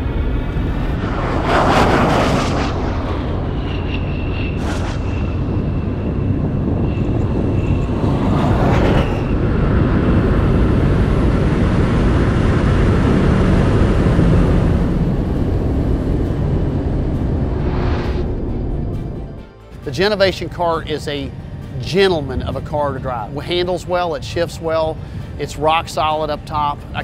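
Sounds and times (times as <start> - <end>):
thin high whine: 0.0 - 12.8
wind and tyre noise: 0.0 - 27.0.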